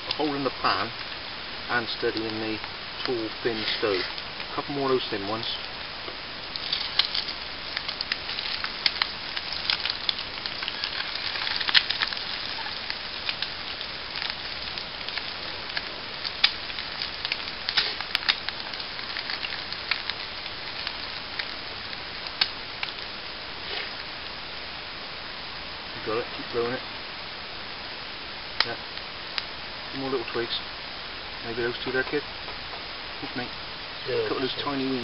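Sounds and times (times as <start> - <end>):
eggs sizzling in a pan: 0.0 - 35.0
fire crackling and popping: 0.0 - 35.0.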